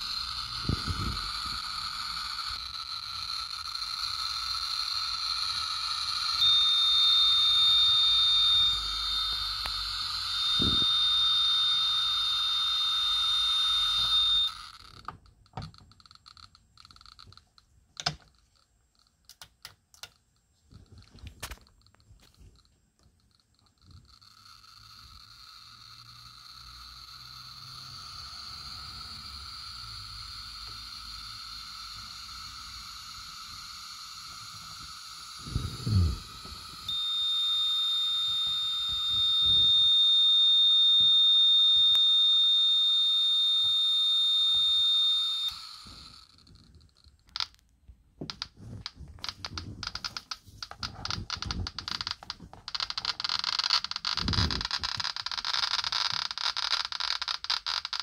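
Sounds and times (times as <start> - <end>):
high warning tone: 0.0 - 14.9, 24.1 - 46.3
geiger counter clicking: 0.0 - 58.0.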